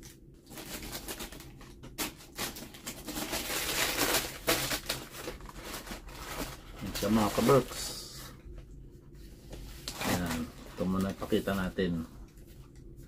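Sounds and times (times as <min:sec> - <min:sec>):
tissue paper rustling: 0:02.0 - 0:08.3, 0:09.7 - 0:11.7.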